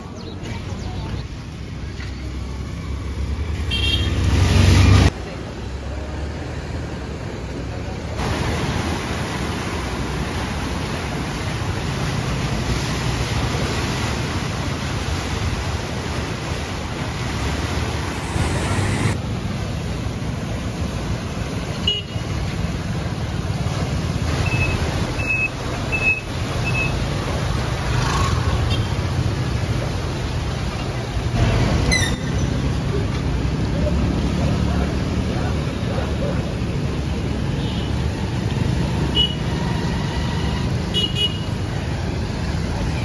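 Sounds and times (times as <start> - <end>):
river water rushing: 0.0 - 43.0
traffic on wet road: 0.0 - 43.0.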